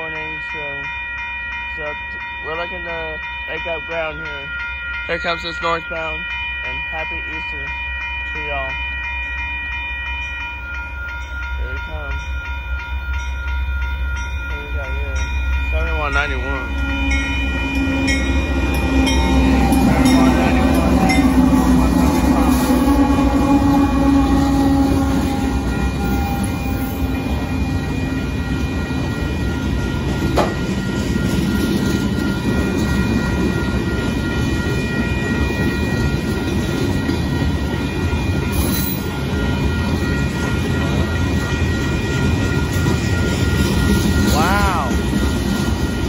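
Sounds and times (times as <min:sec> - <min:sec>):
crossing bell ringing: 0:00.0 - 0:46.0
diesel locomotive engine: 0:00.0 - 0:46.0
train cars rumbling and clacking: 0:00.0 - 0:46.0
sharp knock from train cars: 0:30.3 - 0:30.7.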